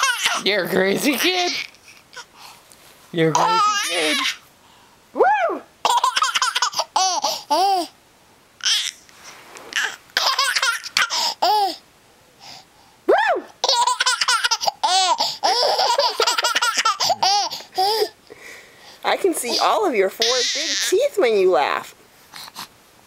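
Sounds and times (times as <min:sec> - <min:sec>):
infant laughing: 0:00.0 - 0:02.3, 0:03.4 - 0:04.4, 0:05.9 - 0:07.9, 0:09.8 - 0:11.8, 0:13.6 - 0:18.2, 0:19.4 - 0:20.9.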